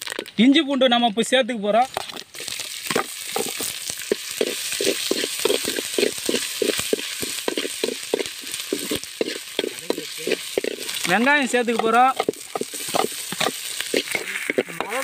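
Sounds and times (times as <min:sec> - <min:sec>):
paste sizzling in hot oil: 0:01.8 - 0:15.0
ladle scraping metal pan: 0:01.9 - 0:11.1, 0:11.7 - 0:15.0.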